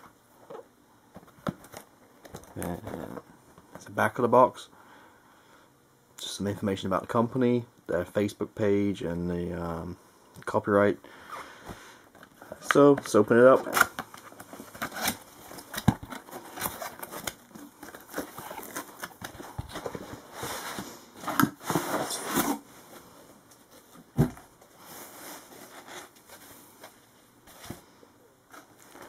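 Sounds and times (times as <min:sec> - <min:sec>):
cardboard scraping and rustling: 0:13.6 - 0:23.0.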